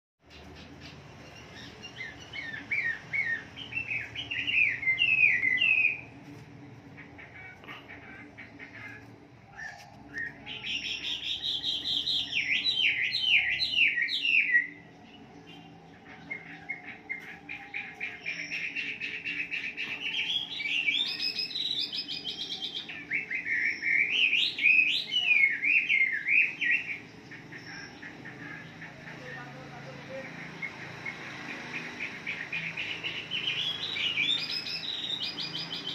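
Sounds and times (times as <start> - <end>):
bird singing whistled phrases: 1.9 - 6.1, 9.6 - 14.9, 20.1 - 27.0, 33.4 - 35.9.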